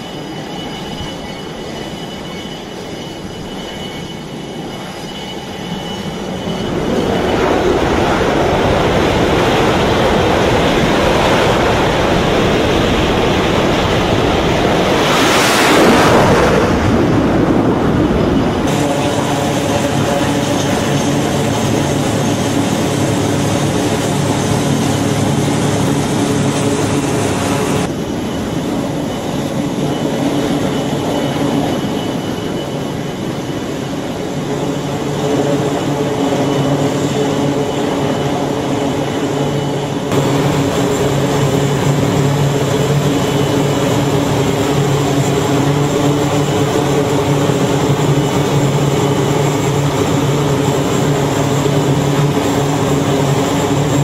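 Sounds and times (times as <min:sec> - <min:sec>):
aircraft engines humming: 0:00.0 - 0:54.0.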